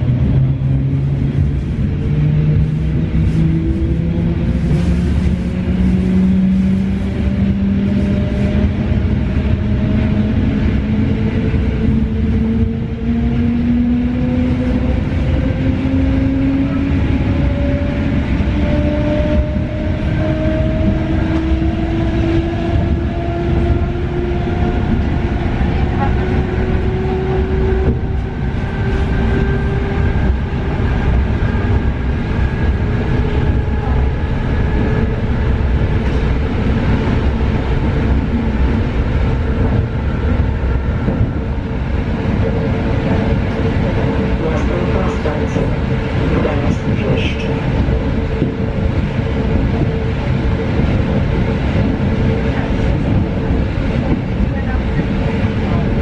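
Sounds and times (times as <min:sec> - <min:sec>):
wheels rumbling on track: 0:00.0 - 0:56.0.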